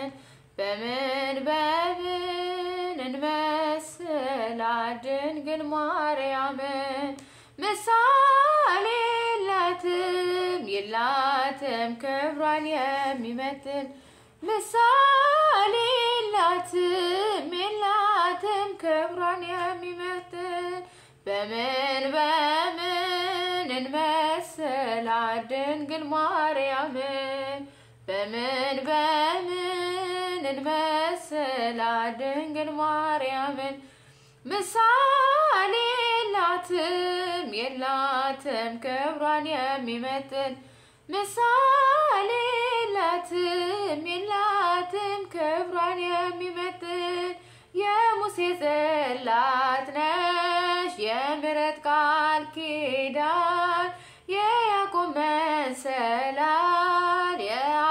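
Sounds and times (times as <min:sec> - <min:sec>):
woman singing unaccompanied: 0:00.0 - 0:57.9.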